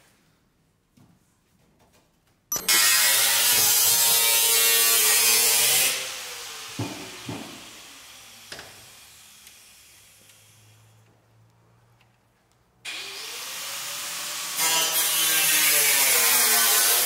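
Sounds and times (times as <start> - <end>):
angle grinder cutting sheet metal: 2.5 - 9.9, 12.9 - 17.0.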